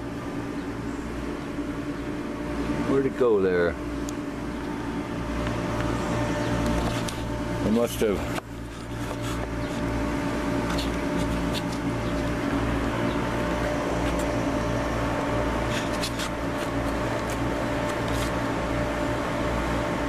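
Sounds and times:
mechanical hum with whining tones: 0.0s - 20.0s.

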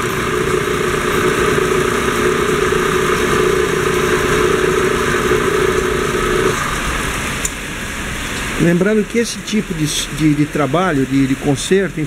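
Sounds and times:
wood lathe motor humming: 0.0s - 7.3s.

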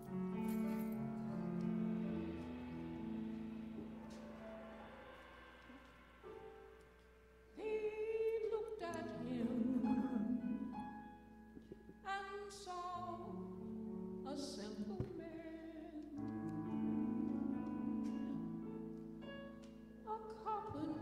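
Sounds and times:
held instrumental chords: 0.0s - 8.1s
woman singing gospel: 7.6s - 10.8s, 14.3s - 18.5s, 20.1s - 21.0s.

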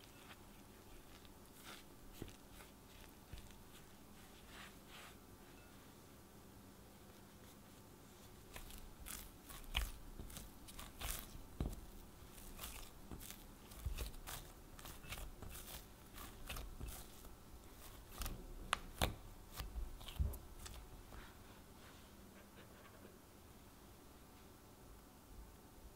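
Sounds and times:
dull thumps of dough: 0.0s - 4.4s, 8.4s - 21.2s
dough squelching and tapping: 0.0s - 5.7s, 7.5s - 21.4s.

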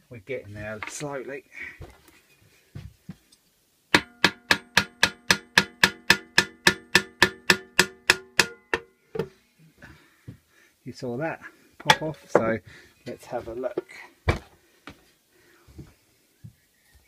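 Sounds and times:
hammer tapping on metal: 4.0s - 9.3s.

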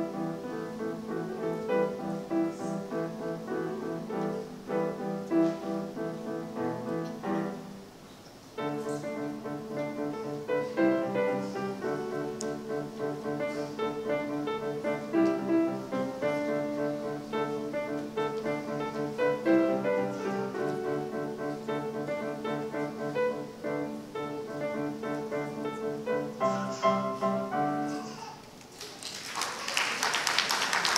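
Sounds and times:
solo piano playing: 0.0s - 28.0s.

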